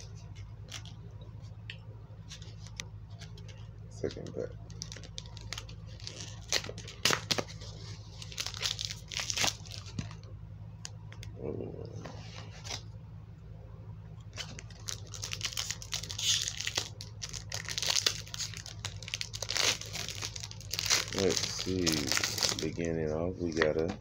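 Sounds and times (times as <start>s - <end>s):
foil wrapper tearing and crinkling: 2.3s - 7.6s, 8.2s - 10.2s, 14.4s - 23.9s.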